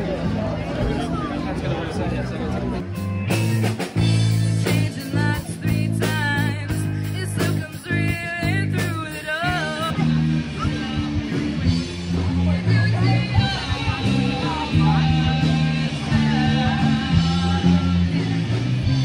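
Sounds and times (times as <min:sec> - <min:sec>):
rock band playing: 0:00.0 - 0:19.0
person singing: 0:04.5 - 0:11.4, 0:12.2 - 0:18.7.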